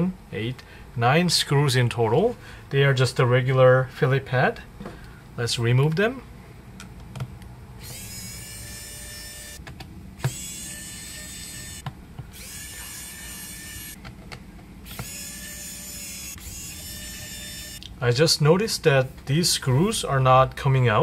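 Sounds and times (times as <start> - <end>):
electric screwdriver whirring: 7.8 - 9.6, 10.2 - 14.0, 14.9 - 17.8.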